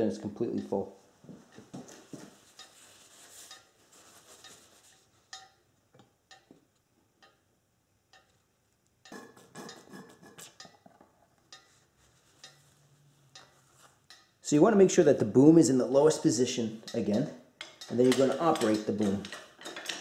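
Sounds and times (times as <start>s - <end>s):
paper towel rustling: 2.0s - 5.1s.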